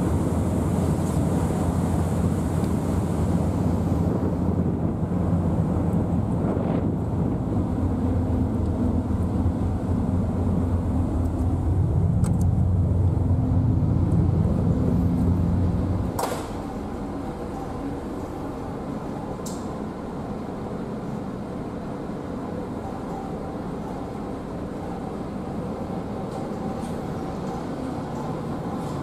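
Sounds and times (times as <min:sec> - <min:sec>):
low engine drone: 0:00.0 - 0:29.0.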